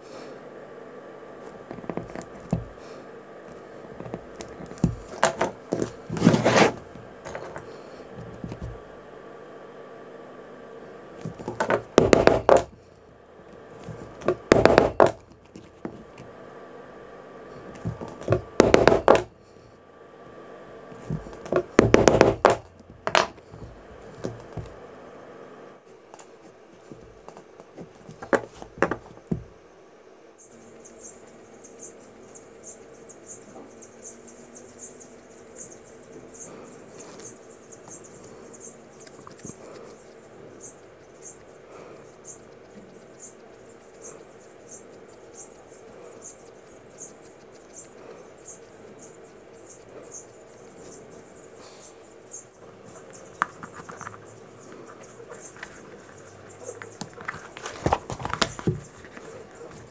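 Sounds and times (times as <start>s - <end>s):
faint fast scratching: 1.5s - 8.8s, 30.8s - 59.9s.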